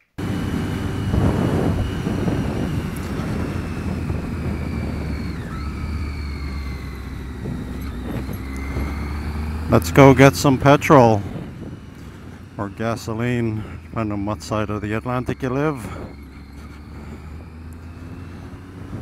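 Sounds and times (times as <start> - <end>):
faint high whine: 0.0 - 18.4
motorcycle engine running: 0.0 - 19.0
wind rush on microphone: 0.2 - 9.7, 10.5 - 14.2.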